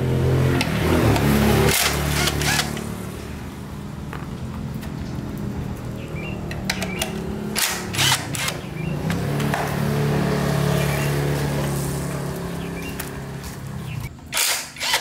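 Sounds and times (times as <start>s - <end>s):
sharp clicks and knocks: 6.4s - 9.8s.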